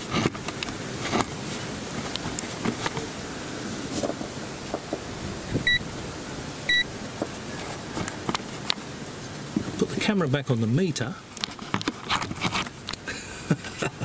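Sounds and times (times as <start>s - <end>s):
multimeter beep: 6.7s - 6.9s
handling clicks and knocks: 11.3s - 13.0s.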